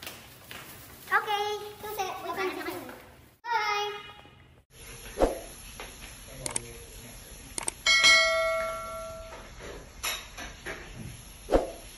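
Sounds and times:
sharp clicks: 6.4s - 6.7s, 7.5s - 7.8s
bright bell ding: 7.9s - 9.4s
swoosh: 11.5s - 11.9s.

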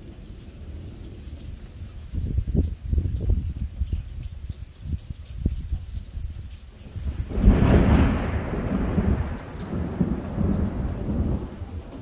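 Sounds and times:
rain: 0.0s - 12.0s
thunderclap: 7.0s - 12.0s.

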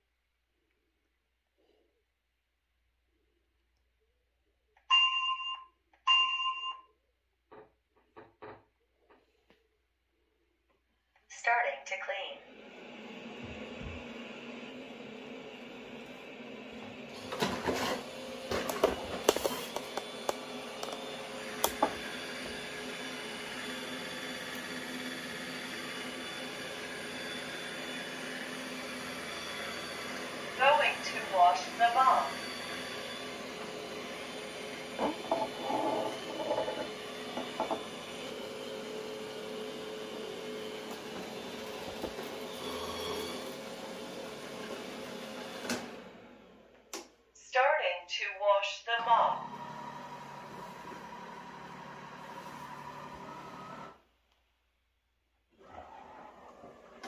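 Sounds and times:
robot vacuum motor humming: 12.5s - 45.5s.

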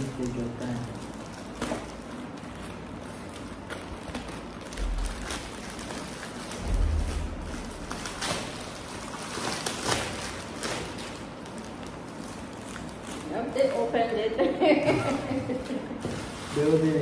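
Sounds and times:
plastic bag rustling: 0.0s - 17.0s
dull low thumps: 6.6s - 8.2s.

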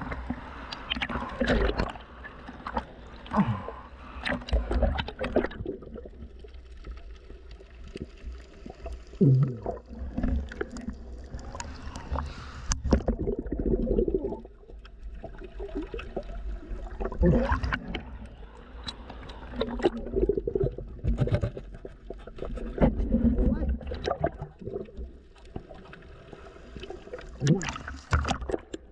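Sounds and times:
underwater rumble: 0.0s - 28.9s
diver's breathing bubbles: 8.7s - 14.6s.

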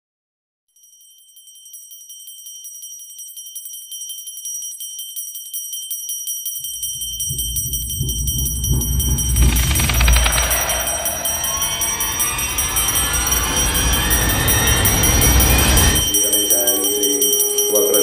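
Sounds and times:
ringing bell-like tone: 0.7s - 18.0s
deep rumble: 6.6s - 16.1s
rapid ticking: 6.7s - 16.1s.

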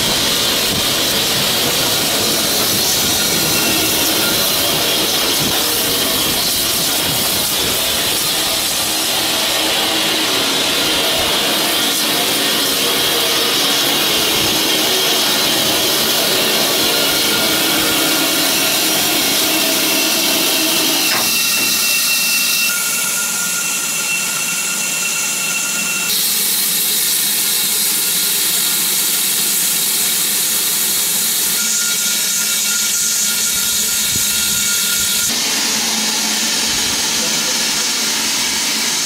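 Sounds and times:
steam hissing: 0.0s - 39.0s
faint whistling tones: 2.6s - 6.3s, 16.8s - 26.1s.

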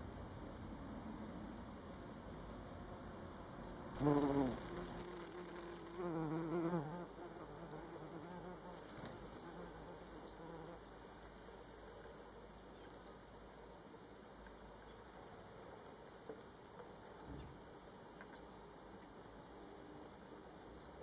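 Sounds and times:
bumblebee buzzing: 4.0s - 8.8s.

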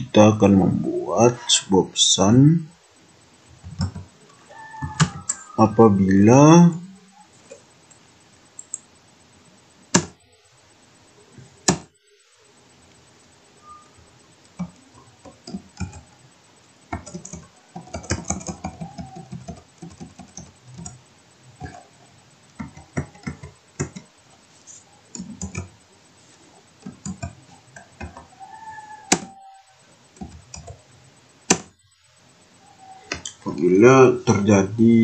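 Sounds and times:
keyboard typing clicks: 3.6s - 4.1s, 14.5s - 16.1s, 16.9s - 21.0s, 22.5s - 24.1s, 25.1s - 25.7s, 26.8s - 28.3s.

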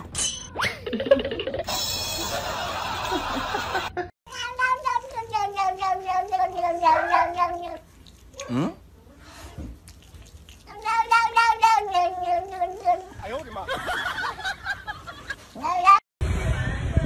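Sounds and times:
cat meowing: 4.4s - 7.8s
cat chirp: 6.5s - 7.8s.

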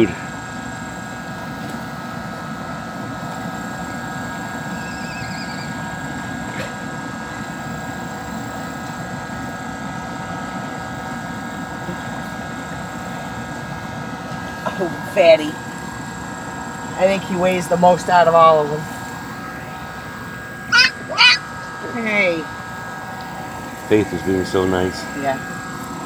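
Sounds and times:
steady machine drone: 0.0s - 26.0s
short high warble: 20.7s - 21.6s.

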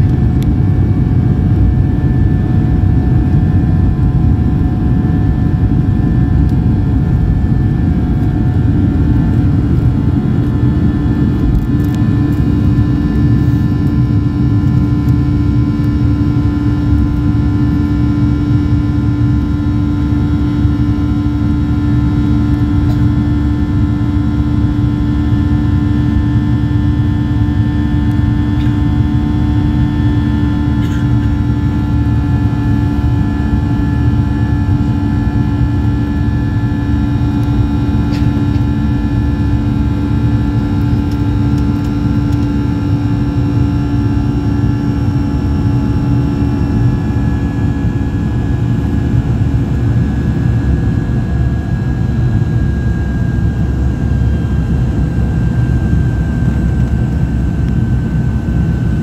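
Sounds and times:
airplane cabin rumble: 0.0s - 59.0s
jet engine whine: 0.0s - 59.0s.

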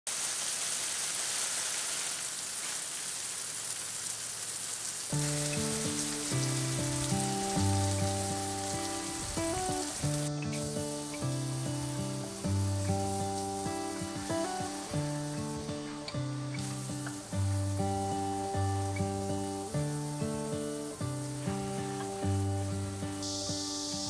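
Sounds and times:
water hissing from hose nozzle: 0.1s - 24.0s
background music: 5.2s - 24.0s.

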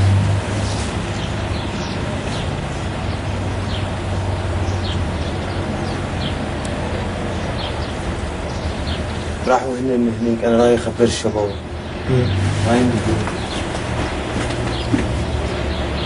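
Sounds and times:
vehicle convoy engine rumble: 0.0s - 16.0s.

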